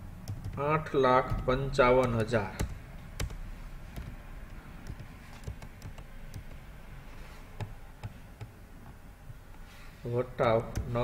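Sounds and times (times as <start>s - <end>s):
computer keyboard keys clicking: 0.2s - 0.6s, 1.3s - 6.7s.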